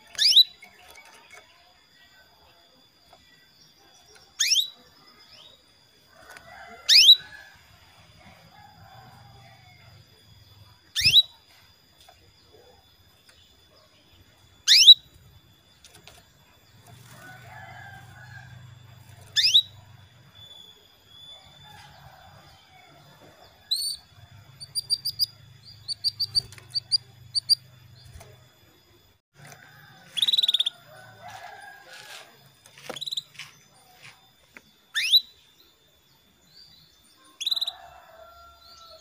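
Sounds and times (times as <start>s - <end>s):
canary calls sweeping downward: 0.0s - 1.3s, 4.4s - 4.8s, 6.8s - 7.4s, 10.9s - 11.4s, 14.6s - 15.1s, 19.1s - 19.8s, 30.1s - 30.7s, 34.9s - 35.3s, 37.3s - 37.9s.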